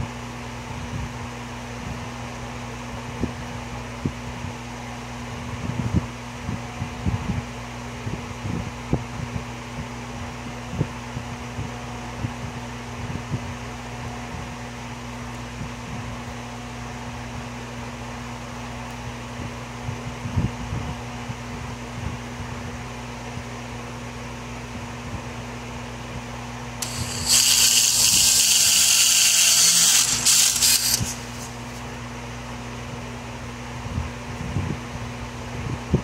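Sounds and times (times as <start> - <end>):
workshop machinery hum: 25.5 - 34.1.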